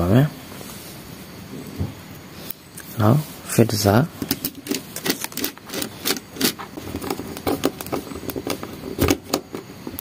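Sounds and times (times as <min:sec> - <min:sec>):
screwdriver clicking and scraping: 0:04.2 - 0:10.0
wires and plastic being handled: 0:04.2 - 0:10.0.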